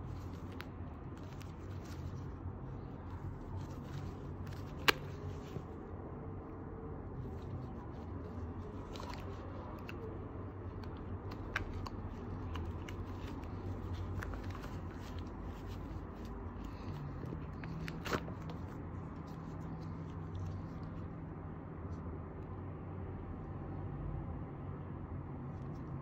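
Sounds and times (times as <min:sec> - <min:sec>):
nylon pouch rustling: 0:00.0 - 0:05.9, 0:07.2 - 0:21.0
low background hum: 0:00.0 - 0:26.0.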